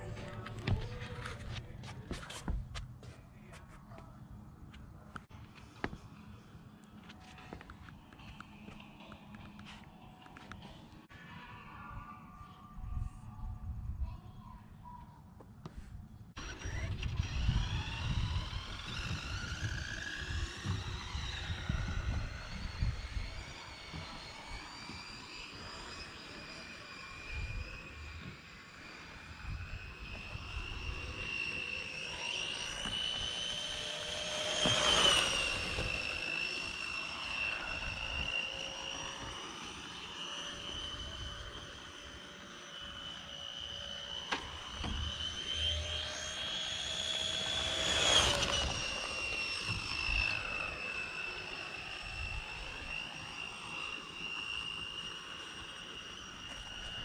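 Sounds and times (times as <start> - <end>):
rc car motor whining: 16.4 - 57.0.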